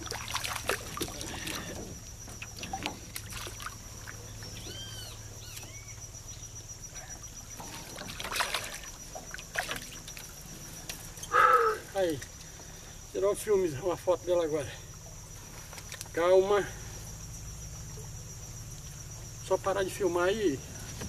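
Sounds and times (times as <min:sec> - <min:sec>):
fish thrashing and splashing: 0:00.0 - 0:04.9, 0:07.5 - 0:11.1.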